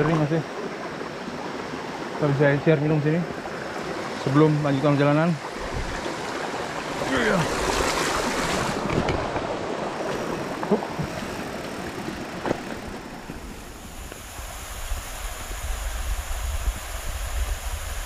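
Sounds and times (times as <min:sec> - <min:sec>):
water rushing over rocks: 0:00.0 - 0:18.0
wind rumble on microphone: 0:05.6 - 0:06.1, 0:13.3 - 0:18.0.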